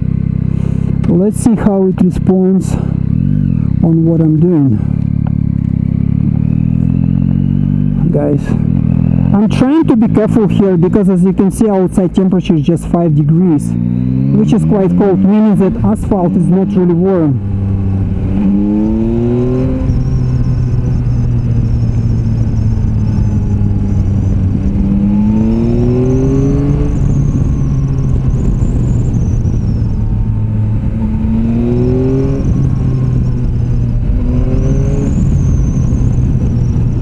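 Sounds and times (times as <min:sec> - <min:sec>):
motorcycle engine accelerating: 0:00.0 - 0:37.0
wind rushing over microphone: 0:13.8 - 0:37.0.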